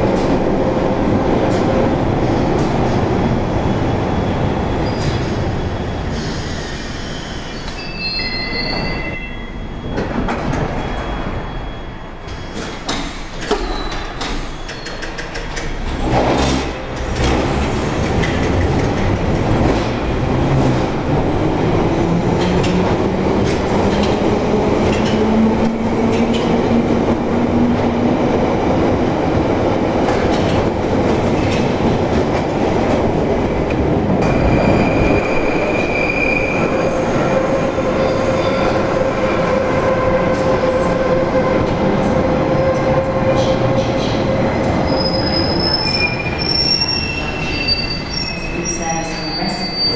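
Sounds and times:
tunnel rumble: 0.0s - 7.0s, 15.2s - 49.9s
train wheels squealing: 3.7s - 15.4s, 34.2s - 39.6s, 44.8s - 49.9s.

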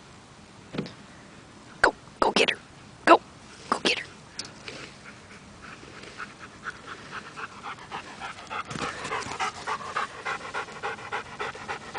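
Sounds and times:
dog panting rapidly: 5.0s - 11.9s.

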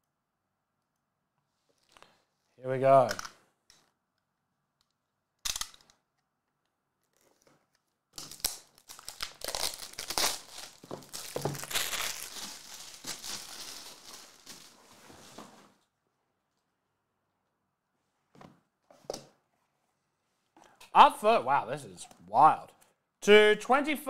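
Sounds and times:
plastic wrap ripping: 8.2s - 14.8s
plastic wrap crackling: 8.2s - 14.9s.

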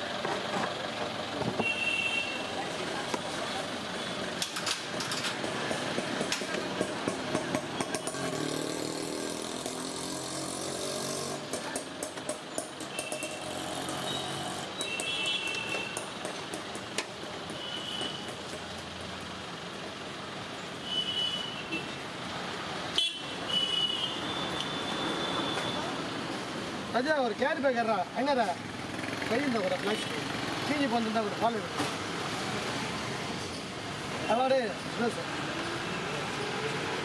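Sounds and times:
passing motor vehicles: 2.5s - 14.8s, 24.8s - 37.0s.

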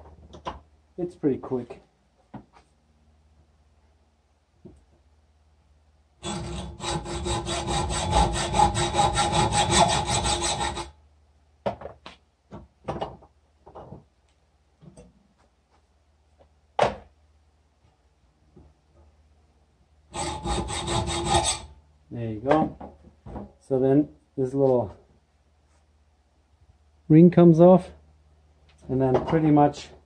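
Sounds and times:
hacksaw cutting steel: 6.2s - 10.9s, 20.1s - 21.7s.

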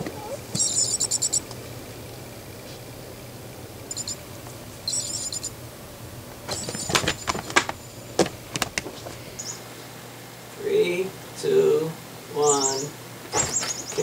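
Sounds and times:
kitten chirps: 0.0s - 1.5s, 4.9s - 5.5s.

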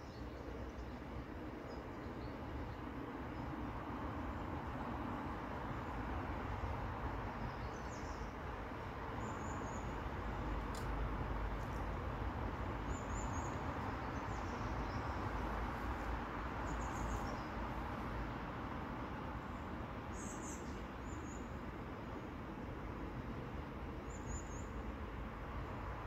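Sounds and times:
small birds chirping: 12.8s - 17.8s.

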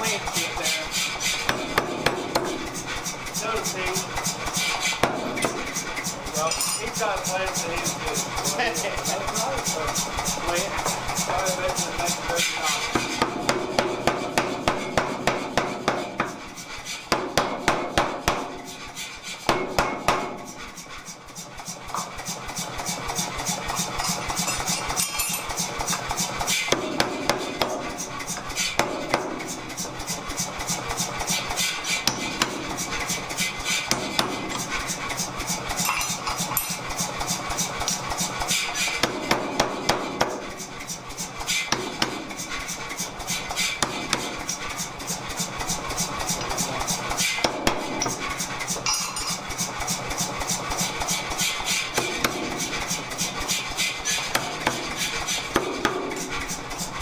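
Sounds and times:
power hammer striking hot steel: 0.0s - 7.1s, 10.8s - 20.9s, 21.9s - 29.6s, 31.0s - 40.5s, 45.4s - 50.9s, 51.8s - 53.4s, 54.1s - 56.6s
hammer motor running: 0.0s - 19.0s, 20.0s - 57.0s.

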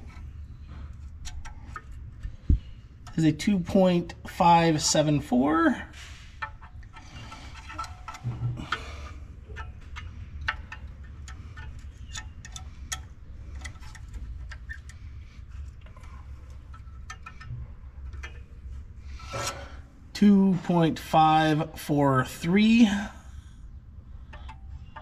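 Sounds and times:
calipers clicking on metal: 0.0s - 3.5s, 6.3s - 19.9s, 24.2s - 25.0s
low steady hum: 0.0s - 25.0s.

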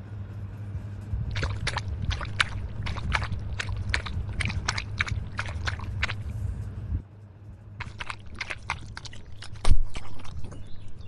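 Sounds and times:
steady low hum: 0.0s - 11.0s
lapping and slurping of water: 1.3s - 6.3s, 7.8s - 11.0s.

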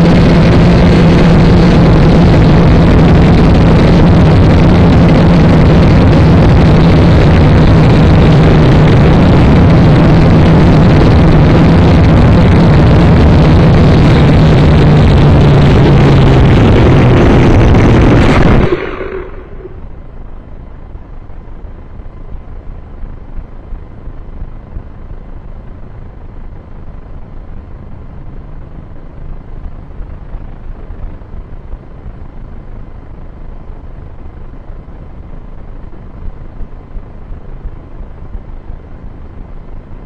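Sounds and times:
wind buffeting microphone: 0.0s - 20.2s.

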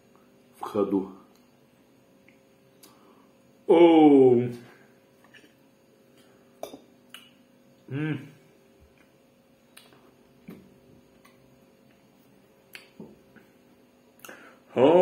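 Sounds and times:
faint electrical hum: 0.0s - 15.0s
person humming: 7.9s - 8.4s
mouth clicks of eating: 9.7s - 10.0s, 12.7s - 13.0s.

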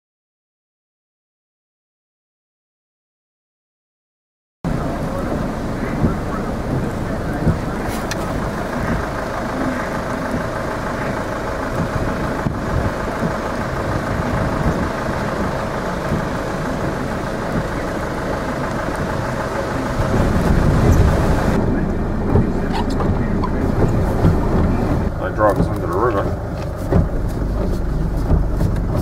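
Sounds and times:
floodwater rushing: 4.7s - 29.0s
heavy rain: 4.7s - 29.0s
low rumble: 4.7s - 29.0s.

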